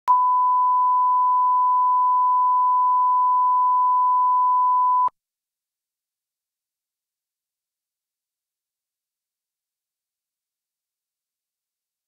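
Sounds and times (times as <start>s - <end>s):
high test tone beep: 0.1s - 5.1s.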